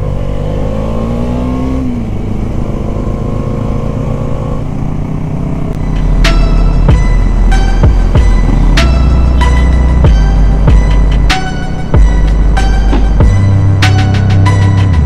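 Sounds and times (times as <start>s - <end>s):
motorcycle engine running: 0.0s - 15.0s
music: 5.8s - 15.0s.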